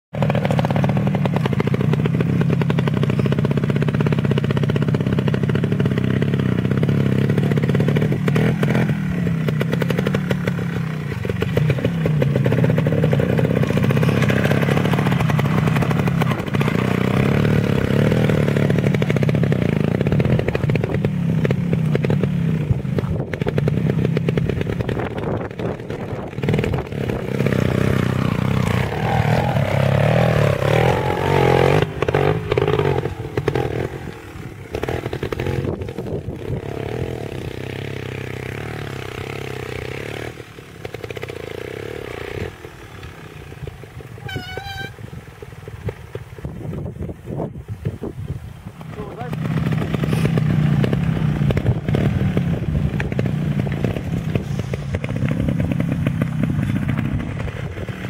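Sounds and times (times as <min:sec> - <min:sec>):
motorcycle engine at low revs: 0:00.0 - 0:58.0.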